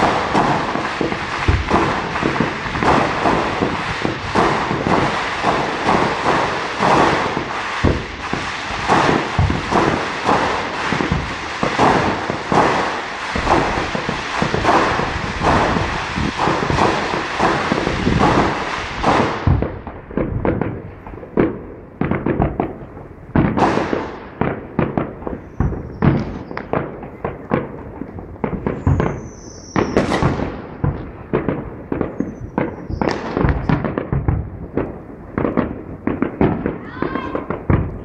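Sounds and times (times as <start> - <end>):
firework shells bursting: 0.0 - 38.0
falling firework whistles: 25.3 - 26.7, 28.6 - 30.4, 32.0 - 33.8.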